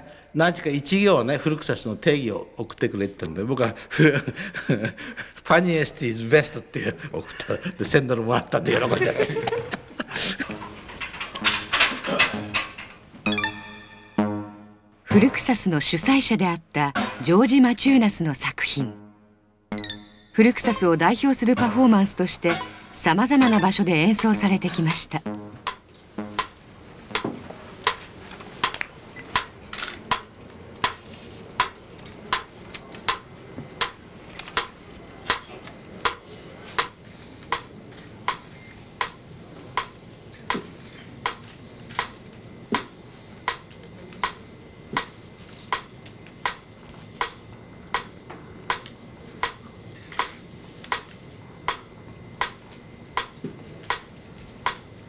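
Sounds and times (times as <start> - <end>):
metronome ticking: 19.7 - 24.6.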